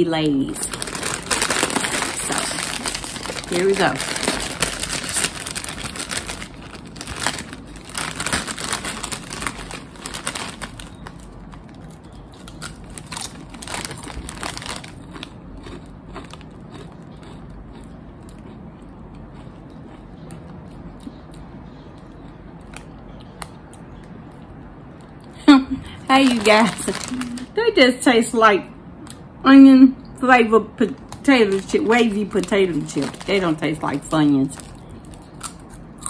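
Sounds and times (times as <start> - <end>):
foil chip bag crinkling: 0.4 - 17.0, 26.0 - 27.6, 31.0 - 35.7
chip crunching: 0.5 - 21.2, 26.1 - 27.5, 31.0 - 36.0.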